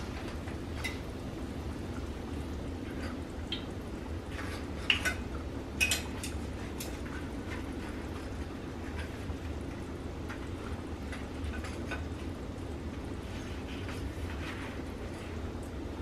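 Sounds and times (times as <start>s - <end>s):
hot oil sizzling in skillet: 0.0s - 16.0s
metal tongs clicking on pan: 5.8s - 7.0s.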